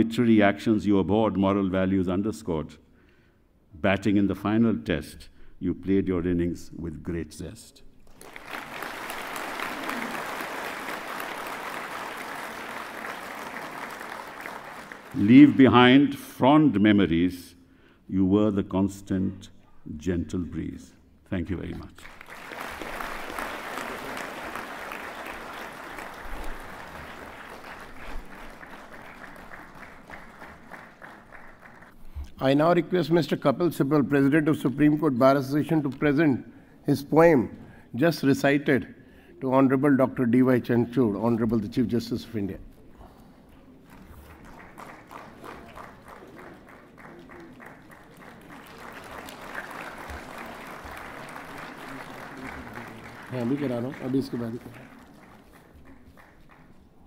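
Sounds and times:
audience applauding: 0:08.0 - 0:16.0, 0:22.0 - 0:32.0, 0:43.8 - 0:57.0.

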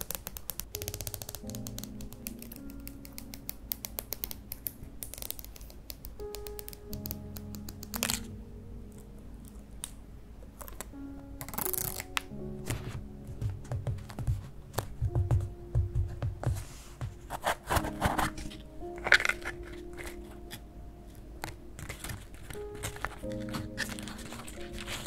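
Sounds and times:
scissors snipping plastic: 0:00.0 - 0:08.3, 0:10.6 - 0:12.9, 0:17.4 - 0:20.6, 0:21.4 - 0:25.0
soft background music: 0:00.0 - 0:25.0.

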